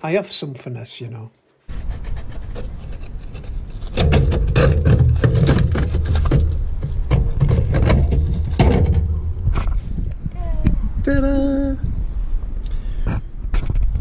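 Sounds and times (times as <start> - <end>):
low rumble: 1.7 - 12.8.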